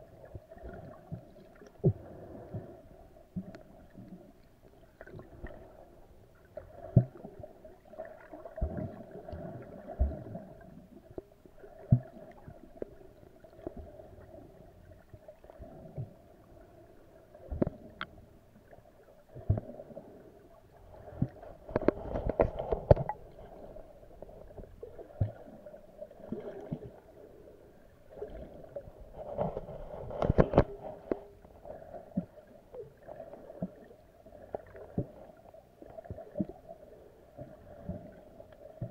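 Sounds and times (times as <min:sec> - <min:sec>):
underwater water wash: 0:00.0 - 0:38.9
small underwater knocks: 0:17.5 - 0:18.2, 0:21.2 - 0:23.6, 0:29.0 - 0:31.3.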